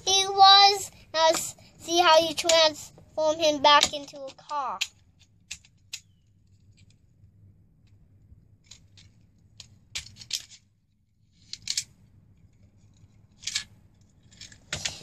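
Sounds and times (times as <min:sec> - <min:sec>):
plastic toy parts clicking: 0:03.7 - 0:06.1, 0:08.6 - 0:10.6, 0:11.4 - 0:11.9, 0:13.4 - 0:15.0.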